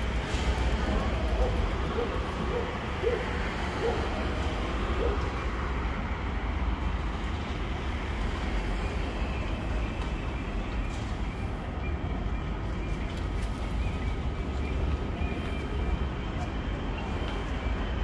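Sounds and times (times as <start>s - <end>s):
traffic rumble: 0.0s - 18.0s.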